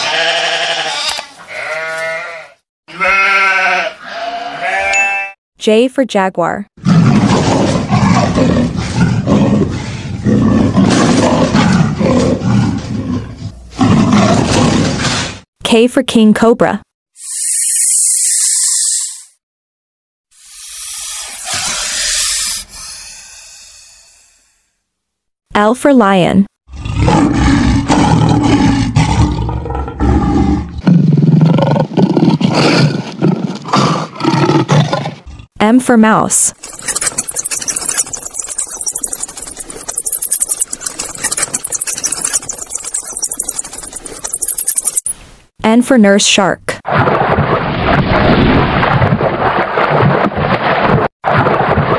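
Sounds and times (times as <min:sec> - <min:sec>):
lion roaring: 0:06.8 - 0:15.3, 0:26.7 - 0:35.5.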